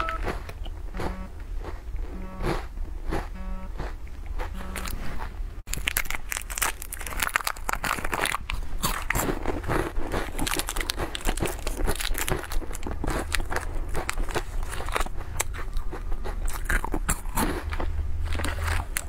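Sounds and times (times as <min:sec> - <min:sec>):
short electronic tone: 0:00.0 - 0:00.3, 0:00.9 - 0:01.4, 0:02.1 - 0:02.6, 0:03.3 - 0:03.8, 0:04.5 - 0:05.1
plastic wrappers crinkling: 0:05.7 - 0:15.2.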